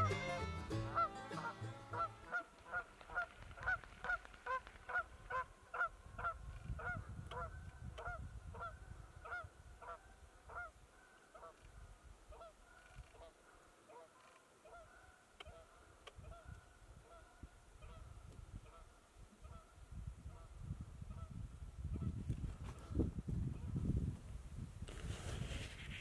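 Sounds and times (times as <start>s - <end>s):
goose honking: 0.0s - 7.5s.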